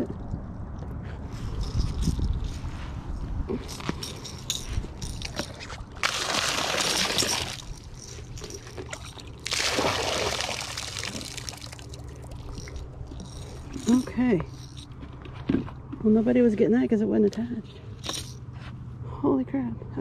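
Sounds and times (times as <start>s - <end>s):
water pouring from metal bucket: 5.8s - 14.0s.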